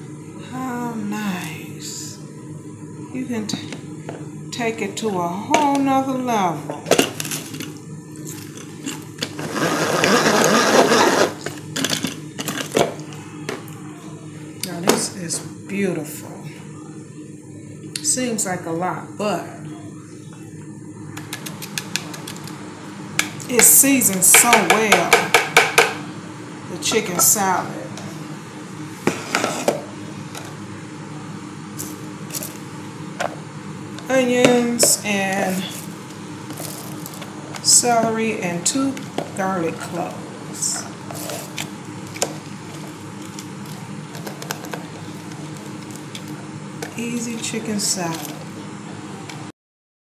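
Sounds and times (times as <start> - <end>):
low steady hum: 0.0 - 49.5
hand-cranked food chopper whirring: 8.4 - 12.8.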